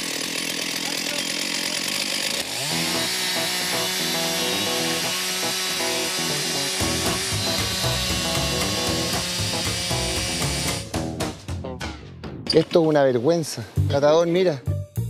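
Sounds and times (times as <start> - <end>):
chainsaw cutting log: 0.0 - 11.1.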